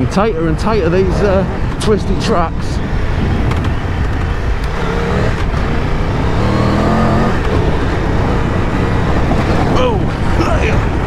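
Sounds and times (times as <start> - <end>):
rush of riding noise: 0.0 - 11.0
motorcycle engine revving: 0.8 - 11.0.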